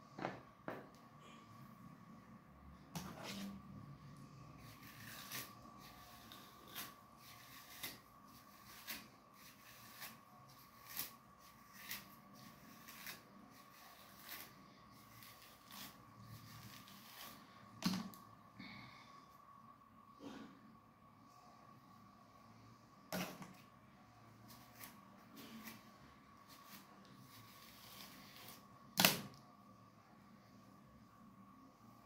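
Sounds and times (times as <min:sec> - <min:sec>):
faint steady whine: 0:00.0 - 0:32.0
comb scratching through hair: 0:04.6 - 0:17.5, 0:24.5 - 0:28.7.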